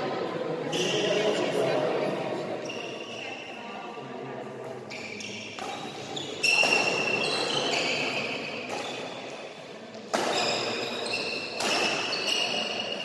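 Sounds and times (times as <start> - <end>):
shoes squeaking on floor: 2.6 - 3.4, 4.9 - 9.2, 10.2 - 13.0
shuttlecock hits: 10.0 - 10.9, 11.6 - 12.1.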